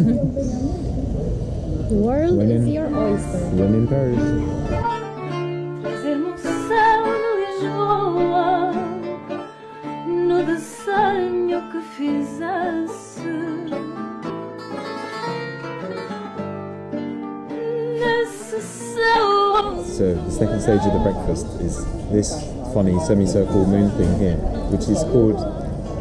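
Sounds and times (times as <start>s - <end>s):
held low notes: 0.0s - 5.9s, 18.8s - 26.0s
wavering melody: 2.0s - 16.3s, 17.5s - 25.9s.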